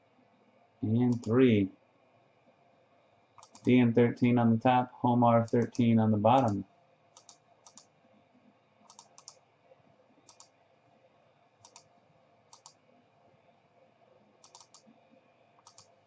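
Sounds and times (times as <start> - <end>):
computer mouse clicks: 1.0 - 1.4, 3.4 - 3.8, 5.5 - 6.6, 7.2 - 7.9, 8.8 - 9.4, 10.2 - 10.6, 11.6 - 11.9, 12.5 - 12.8, 14.4 - 15.0, 15.6 - 16.0.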